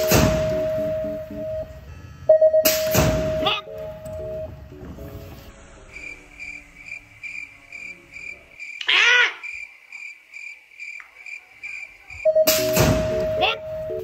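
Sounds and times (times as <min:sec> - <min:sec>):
cricket chirping: 0:05.4 - 0:14.0.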